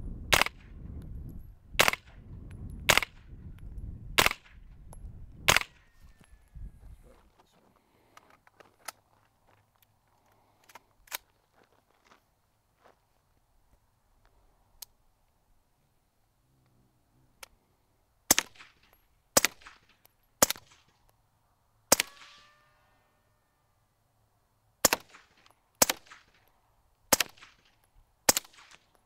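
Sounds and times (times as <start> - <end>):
suppressed gunshots: 0.3 - 0.8, 1.8 - 2.2, 2.9 - 3.3, 4.2 - 4.6, 5.4 - 5.8, 21.9 - 22.5
steel target ringing ping: 22.0 - 23.7.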